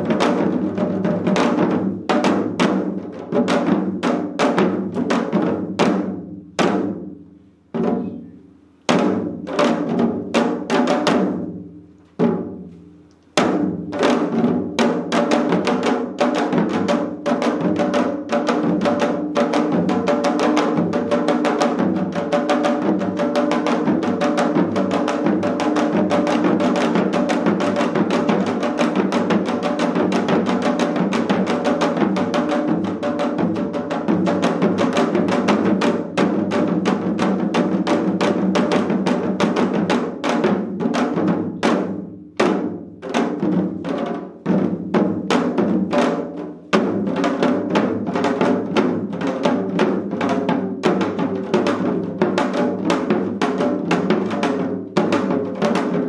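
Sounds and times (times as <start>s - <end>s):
hourglass drums fast rhythm: 13.4s - 41.9s.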